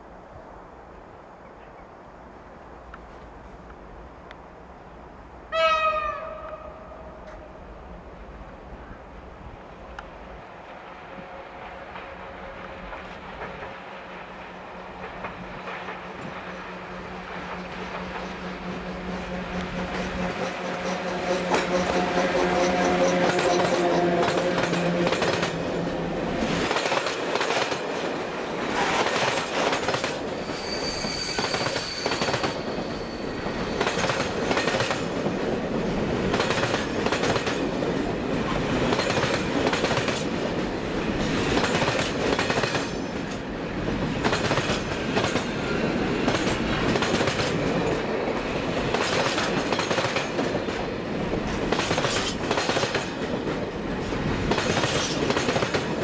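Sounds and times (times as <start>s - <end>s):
electric locomotive humming: 5.5s - 56.0s
wheels clicking over rail joints: 21.4s - 28.2s, 33.5s - 56.0s
high wheel squeal: 30.1s - 34.7s.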